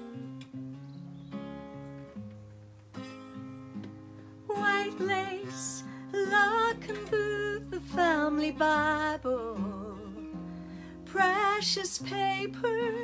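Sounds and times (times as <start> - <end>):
acoustic guitar: 0.0 - 13.0
woman singing with vibrato: 4.5 - 10.3, 11.0 - 13.0.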